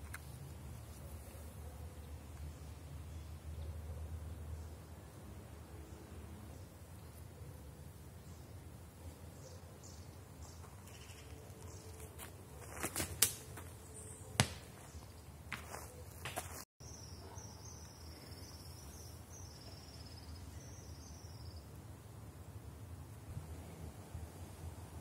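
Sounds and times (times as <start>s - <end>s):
stones clacking on gravel: 10.9s - 13.7s.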